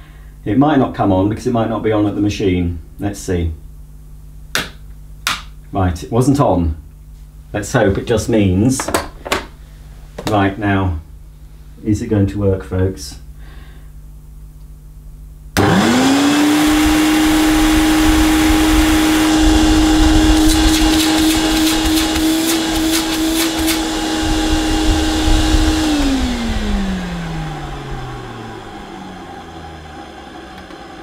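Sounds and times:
vacuum cleaner motor humming: 15.6s - 31.0s.

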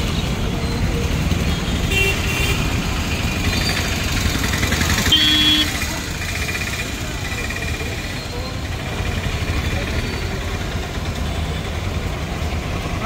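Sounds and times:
motor scooter engine running: 2.8s - 12.6s
short horn beep: 5.1s - 5.7s.

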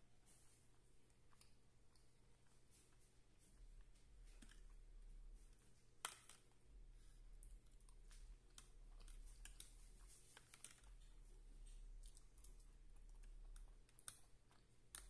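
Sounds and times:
chewing: 0.4s - 3.0s, 7.4s - 15.0s.

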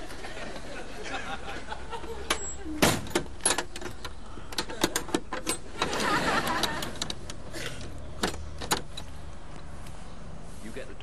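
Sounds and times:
padlock and bolt rattling: 2.3s - 5.9s, 8.2s - 9.2s.

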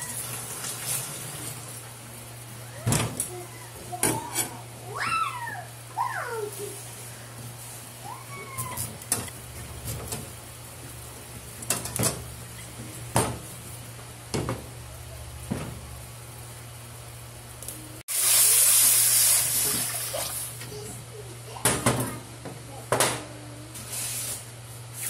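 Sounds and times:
water hissing in hot wok: 0.0s - 2.4s, 18.1s - 20.6s.

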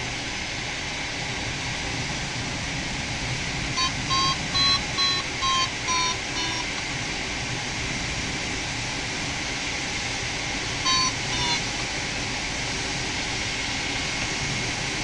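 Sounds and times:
rush of airflow in cockpit: 0.0s - 15.0s
electronic variometer beeps: 3.8s - 6.8s, 10.8s - 11.7s.

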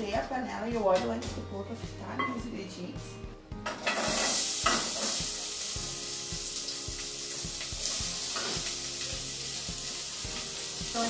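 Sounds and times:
onion sizzling in hot oil: 3.7s - 11.0s.

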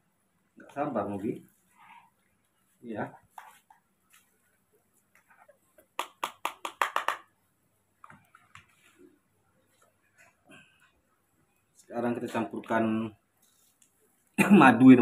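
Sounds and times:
sharp clicking taps: 6.0s - 7.3s.

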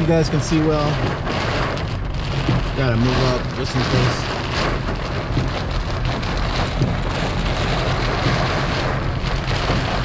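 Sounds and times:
car low rumble: 0.0s - 10.0s
rain falling on car: 0.0s - 10.0s.

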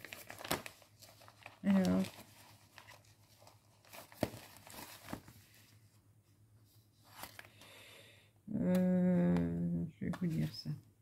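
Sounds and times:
hands rustling materials: 0.0s - 6.0s
woman humming: 8.5s - 9.9s.

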